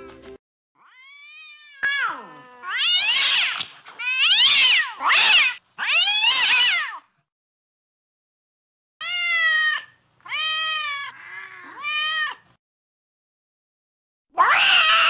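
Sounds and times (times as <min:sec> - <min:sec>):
cat meowing: 0:00.8 - 0:07.1, 0:09.0 - 0:12.4, 0:14.4 - 0:15.0.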